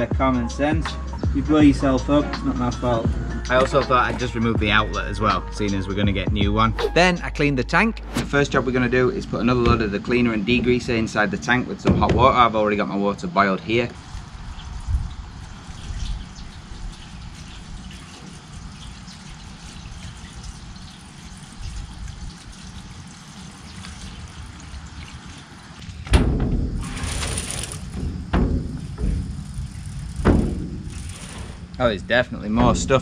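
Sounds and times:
tank knocks: 0:09.5 - 0:10.2, 0:11.8 - 0:12.6, 0:26.0 - 0:30.9, 0:32.5 - 0:33.0
water pouring into metal tank: 0:14.0 - 0:25.8.

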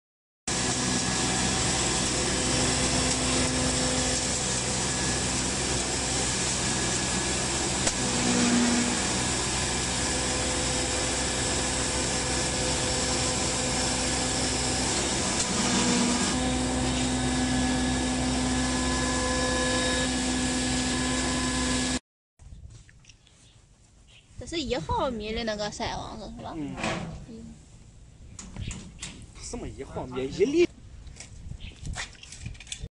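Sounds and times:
hammer mill crushing straw: 0:00.5 - 0:22.0.

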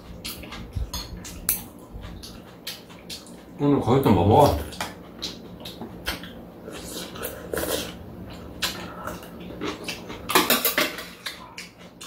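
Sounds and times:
slurping and eating: 0:04.4 - 0:12.0.

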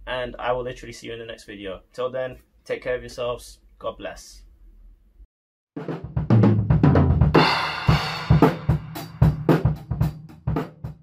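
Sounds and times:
drum kit playing: 0:05.8 - 0:11.0.

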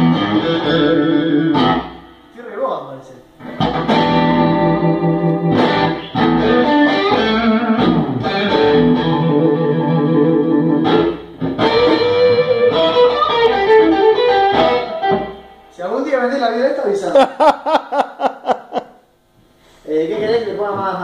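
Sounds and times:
distorted electric guitar chords: 0:00.0 - 0:02.3, 0:03.4 - 0:15.8.

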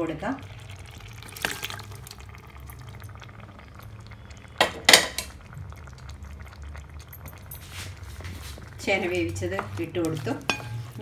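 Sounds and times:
low steady hum: 0:00.0 - 0:11.0
food clattering into a pan: 0:04.6 - 0:05.4, 0:09.6 - 0:11.0.

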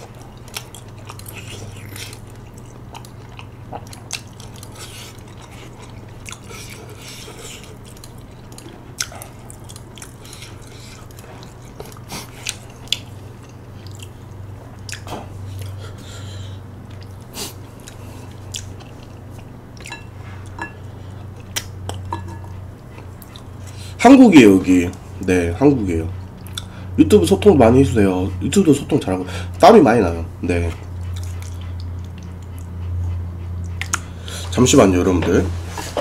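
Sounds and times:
person chewing food: 0:00.0 - 0:24.0, 0:26.2 - 0:26.9, 0:30.7 - 0:34.5
steady low hum: 0:00.0 - 0:36.0
wet mouth clicks: 0:33.7 - 0:34.1.

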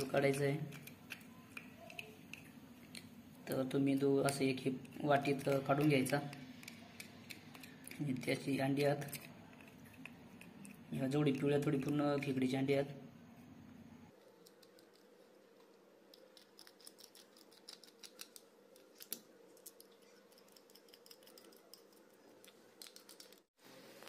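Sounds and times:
tool clicking and scraping shell: 0:00.0 - 0:12.4.

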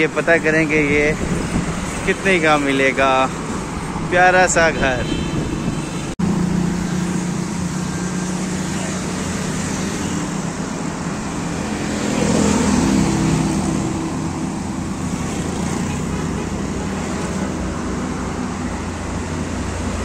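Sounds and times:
road traffic passing: 0:00.0 - 0:20.0
motorcycle passing: 0:05.3 - 0:20.0.

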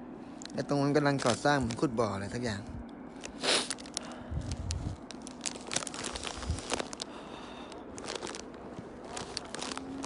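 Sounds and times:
footsteps crunching in snow: 0:03.4 - 0:10.0.

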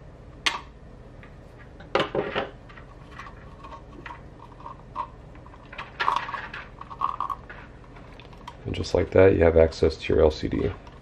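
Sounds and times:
wires rustling: 0:02.5 - 0:09.3.

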